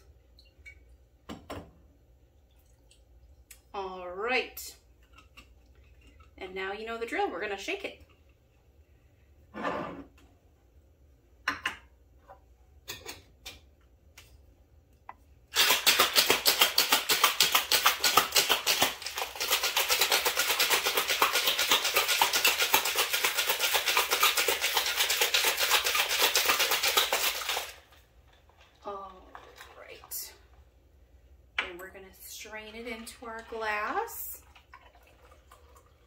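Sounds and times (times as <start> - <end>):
ice rattling in cocktail shaker: 15.5 - 28.0.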